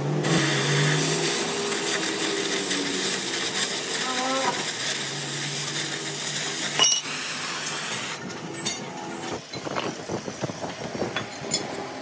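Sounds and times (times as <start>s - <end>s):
workshop machine humming and hissing: 0.0s - 12.0s
metal clinks and knocks: 10.6s - 11.9s.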